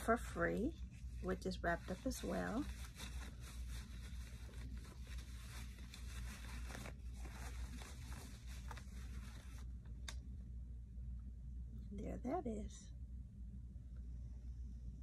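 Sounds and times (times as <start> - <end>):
paper towel rustling and crinkling: 0.0 - 10.0
steady low hum: 0.0 - 15.0.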